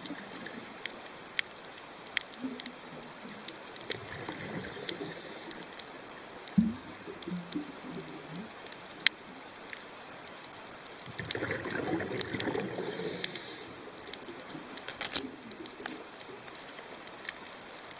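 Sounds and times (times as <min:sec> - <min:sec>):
bubbling rush: 0:11.1 - 0:13.8.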